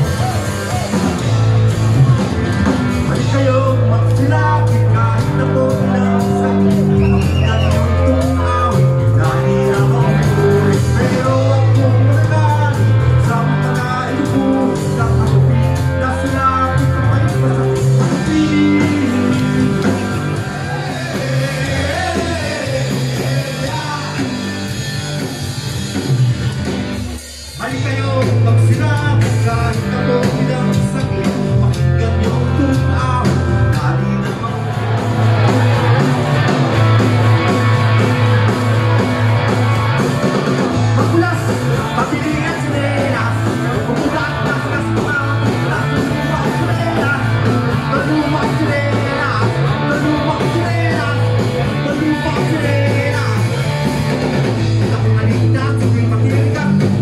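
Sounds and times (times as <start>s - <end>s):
heavy bass line: 0.0s - 57.0s
rock song: 0.0s - 57.0s
person singing: 2.9s - 25.4s, 27.6s - 38.6s, 40.8s - 54.0s, 54.6s - 57.0s.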